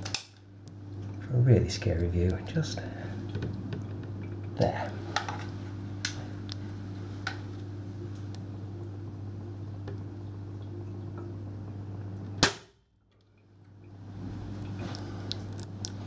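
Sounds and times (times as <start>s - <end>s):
steady low hum: 0.0s - 16.0s
air pistol shot: 12.4s - 12.8s.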